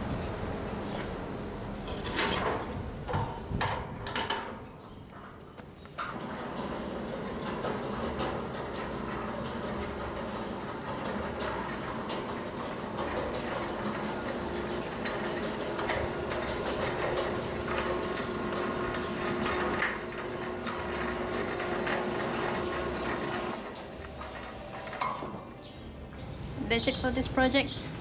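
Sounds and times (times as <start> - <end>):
gate wheels rolling: 0.0 - 28.0
gate motor hum: 6.0 - 25.8.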